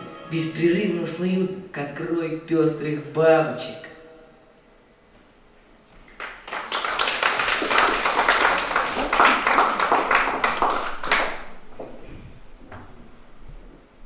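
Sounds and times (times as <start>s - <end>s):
audience clapping: 6.0s - 12.0s.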